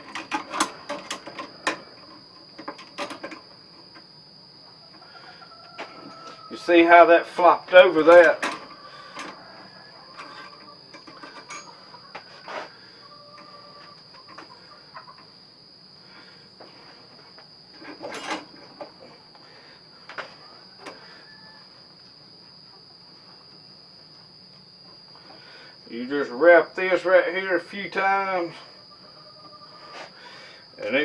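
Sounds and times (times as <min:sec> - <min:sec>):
metal clicks and knocks: 0:00.0 - 0:03.5
high-pitched insect trill: 0:00.0 - 0:31.0.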